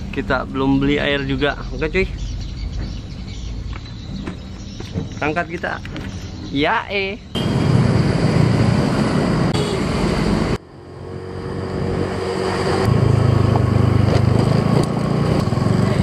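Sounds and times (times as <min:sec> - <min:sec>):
road noise: 0:00.0 - 0:16.0
motor scooter engine running: 0:12.9 - 0:16.0.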